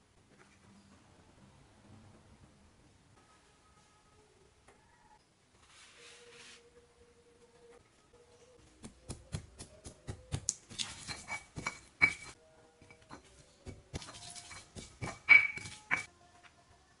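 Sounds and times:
stone pestle pounding in mortar: 0:08.8 - 0:16.1.

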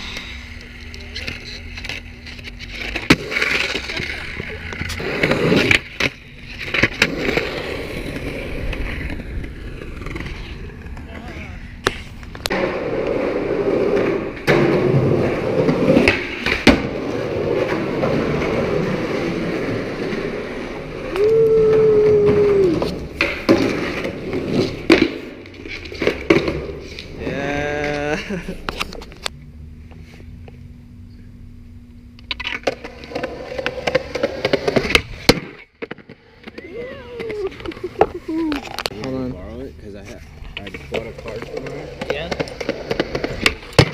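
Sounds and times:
skateboard wheels rolling on concrete: 0:00.0 - 0:43.9
skateboard clack: 0:00.1 - 0:29.3, 0:32.2 - 0:39.2, 0:40.5 - 0:43.9
skateboard landing clack: 0:14.0 - 0:19.0, 0:32.3 - 0:38.8, 0:41.6 - 0:43.9
skateboard pop and landing: 0:32.3 - 0:36.6, 0:42.3 - 0:43.9
skateboard tail pop: 0:34.7 - 0:36.6.

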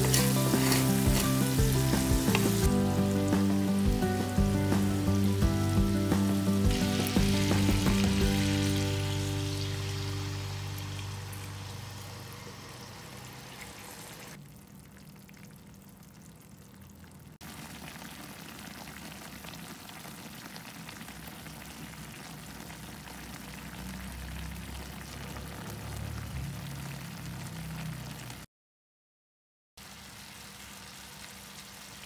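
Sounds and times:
stock simmering and sizzling: 0:00.0 - 0:28.5, 0:29.8 - 0:32.0.

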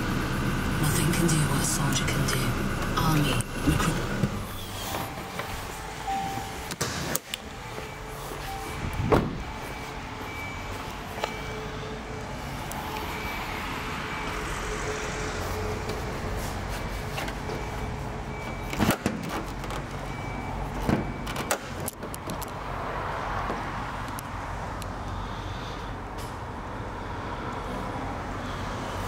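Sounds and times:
car bonnet clunks: 0:08.9 - 0:09.5.

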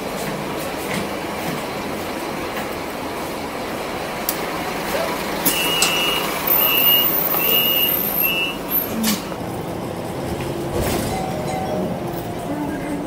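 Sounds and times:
bus running noise: 0:00.0 - 0:13.0
bus door warning beeps: 0:05.4 - 0:09.3, 0:11.0 - 0:11.9.

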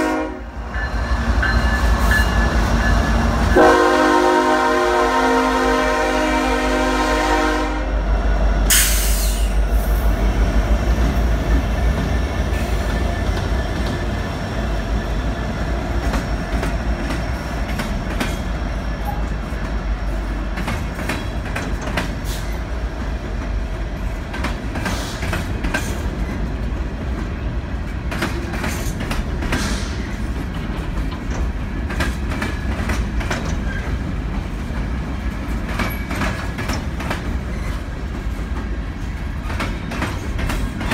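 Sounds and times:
train horn chord: 0:00.0 - 0:00.6, 0:03.4 - 0:08.1
train wheels clicking over rail joints: 0:08.6 - 0:40.9.

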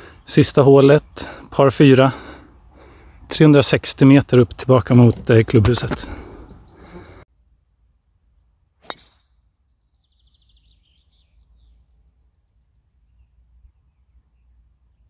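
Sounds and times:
golf ball struck with crack: 0:08.8 - 0:09.3
bird trill: 0:09.0 - 0:14.5.

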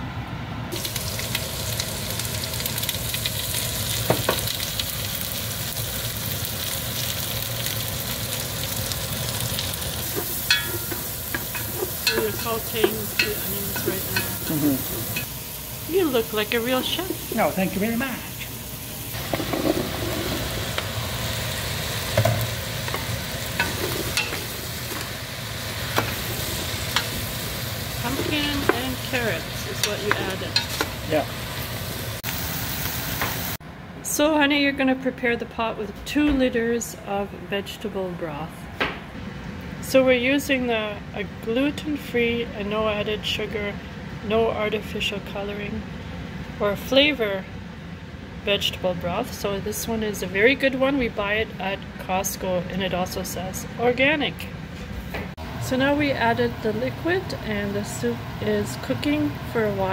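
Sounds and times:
onions sizzling in butter: 0:00.7 - 0:33.6, 0:55.4 - 0:59.9.

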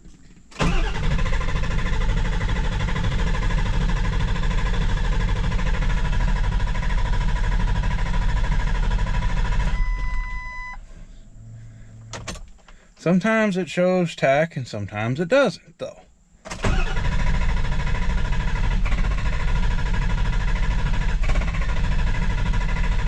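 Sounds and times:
diesel engine cranking: 0:00.4 - 0:12.9, 0:16.4 - 0:23.0
short electronic beep: 0:09.7 - 0:10.8.

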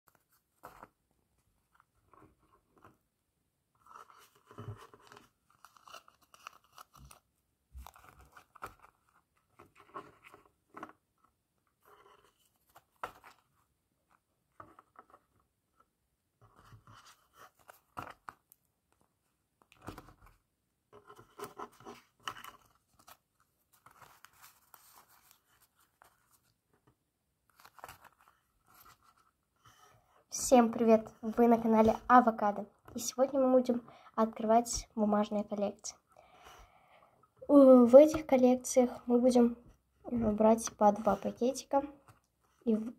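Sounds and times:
paper rustling and crinkling: 0:00.1 - 0:01.0, 0:03.8 - 0:11.0, 0:11.8 - 0:15.4, 0:16.5 - 0:19.0, 0:21.0 - 0:26.6, 0:27.5 - 0:29.4.

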